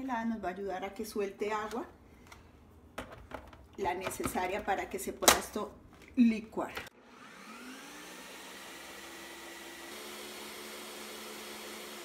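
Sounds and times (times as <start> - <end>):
blender motor running: 7.0 - 12.0.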